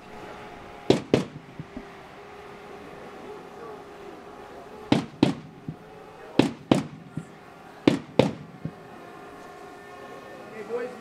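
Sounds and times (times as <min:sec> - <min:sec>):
massed war-cry drum beats: 0:00.9 - 0:02.0, 0:04.9 - 0:09.0.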